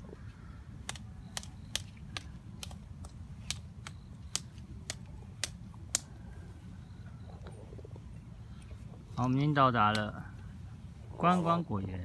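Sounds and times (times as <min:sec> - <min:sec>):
sharp dry clicks: 0:00.8 - 0:06.1.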